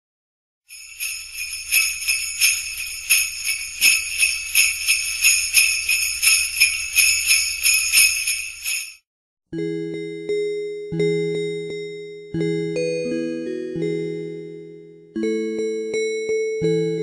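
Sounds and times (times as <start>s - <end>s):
sleigh bells shaking: 0.7s - 9.0s.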